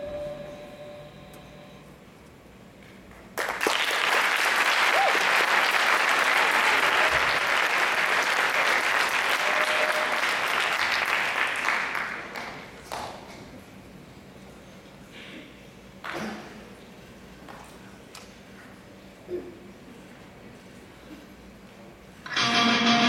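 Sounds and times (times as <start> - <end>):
audience applauding: 3.4 - 12.7
cheers: 4.6 - 11.2.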